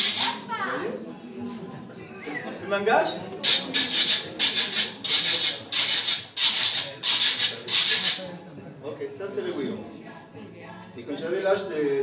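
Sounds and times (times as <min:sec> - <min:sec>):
metal guiro scraping: 0:00.0 - 0:00.4, 0:03.4 - 0:08.2.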